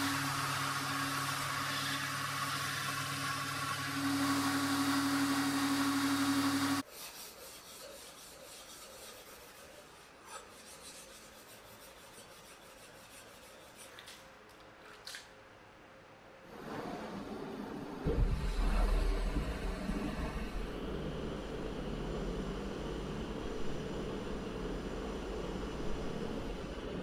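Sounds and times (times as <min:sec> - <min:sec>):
knife rubbing on wet whetstone: 0:06.8 - 0:14.2.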